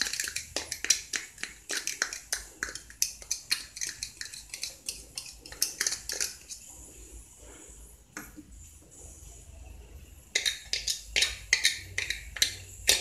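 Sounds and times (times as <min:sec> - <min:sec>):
metal spoon tapping a container: 0:00.0 - 0:06.6, 0:10.3 - 0:13.0.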